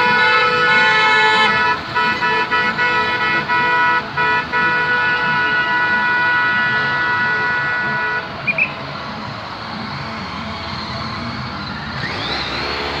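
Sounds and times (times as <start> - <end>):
vehicle horn blast: 0.0 - 8.8
cars driving past: 0.0 - 13.0.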